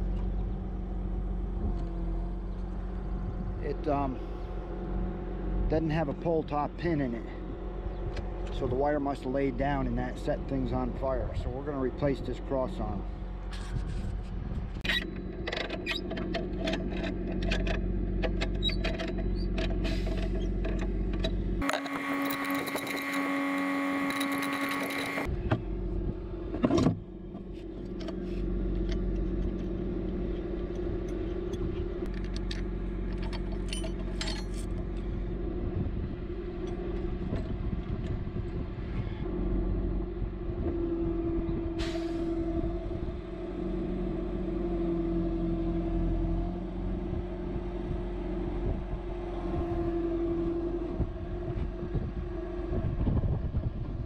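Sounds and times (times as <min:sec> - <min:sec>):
hydraulic whine: 0:00.0 - 0:54.0
truck engine running: 0:00.0 - 0:54.0
metal clicks and knocks: 0:14.8 - 0:23.2, 0:30.6 - 0:34.7.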